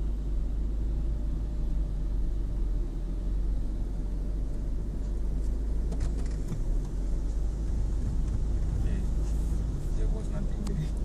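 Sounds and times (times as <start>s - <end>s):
car wash brushes rumbling: 4.2s - 11.0s
light ticks: 10.5s - 11.0s.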